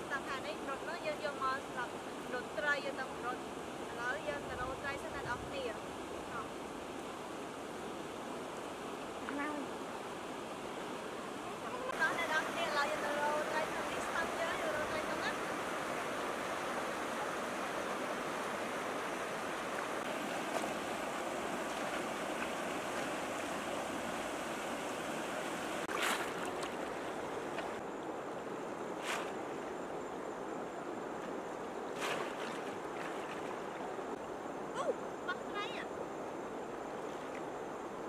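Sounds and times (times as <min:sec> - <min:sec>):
river rushing over stones: 0:06.0 - 0:34.6
water splashes: 0:11.0 - 0:30.2, 0:31.1 - 0:34.3, 0:36.9 - 0:37.6.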